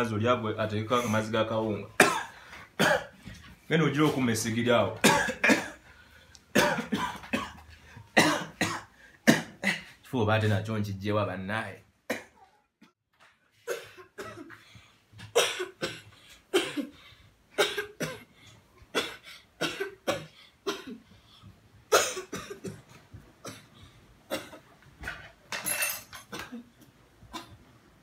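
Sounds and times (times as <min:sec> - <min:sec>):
boy coughing: 0:02.0 - 0:03.2, 0:05.0 - 0:05.8, 0:06.5 - 0:07.6, 0:08.2 - 0:09.9, 0:13.6 - 0:14.6, 0:15.3 - 0:17.0, 0:17.6 - 0:18.3, 0:18.9 - 0:21.1, 0:21.9 - 0:22.8.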